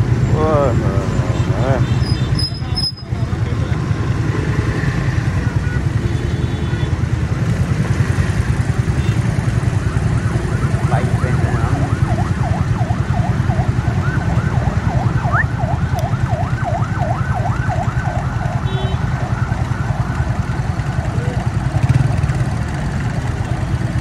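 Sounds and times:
electronic siren yelping: 9.8 - 22.2
motorcycle engine running: 17.6 - 24.0.

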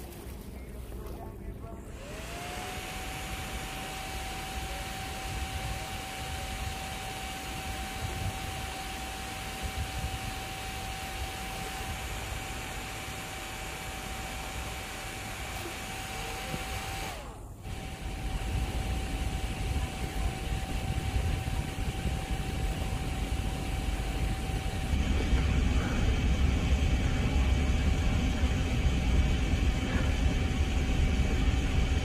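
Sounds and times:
faint steady whine: 0.0 - 32.0
wind buffeting microphone: 4.8 - 12.2, 17.6 - 32.0.

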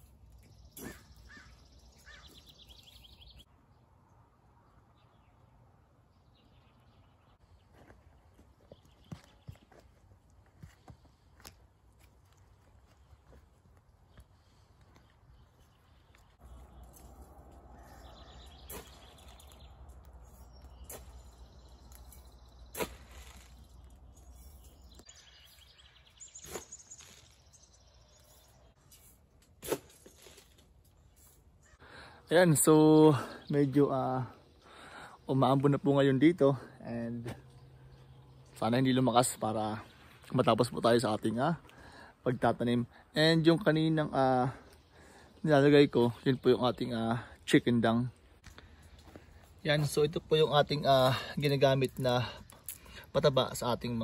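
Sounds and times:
bird chirps and trill: 0.0 - 3.5, 15.4 - 29.0
birds chirping: 0.0 - 29.4, 30.2 - 54.0.

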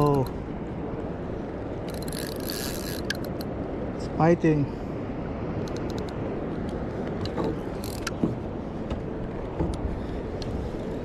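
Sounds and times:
fishing reel clicks: 1.9 - 3.5.

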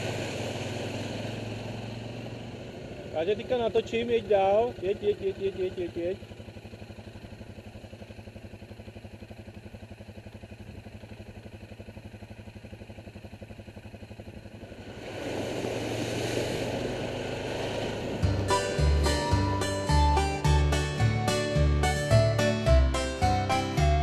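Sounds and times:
atv engine running: 0.0 - 24.0
rough rushing noise: 14.7 - 19.9.

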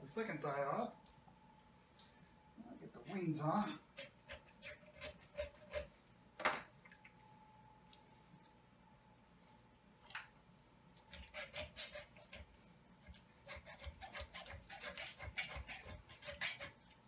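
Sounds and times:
knife sawing through chicken joint: 4.0 - 5.9, 11.1 - 12.5, 13.4 - 16.8.

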